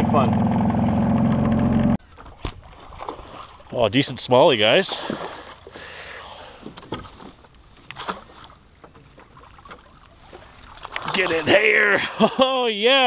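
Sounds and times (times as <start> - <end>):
water splashing against a canoe: 2.0 - 12.0
fish thrashing at the surface: 2.2 - 3.7, 9.2 - 11.7.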